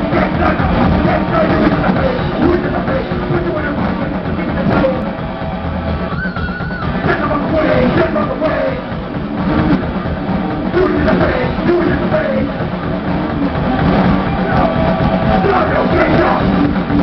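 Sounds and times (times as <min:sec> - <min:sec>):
bass guitar: 0:00.0 - 0:17.0
distorted electric guitars: 0:00.0 - 0:17.0
drum kit: 0:00.0 - 0:17.0.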